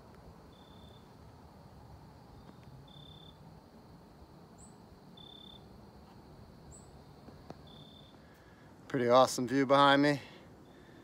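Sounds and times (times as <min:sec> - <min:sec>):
insects trilling: 0:00.2 - 0:11.0
short high insect chirp: 0:00.5 - 0:01.2, 0:02.3 - 0:03.5, 0:04.5 - 0:08.3.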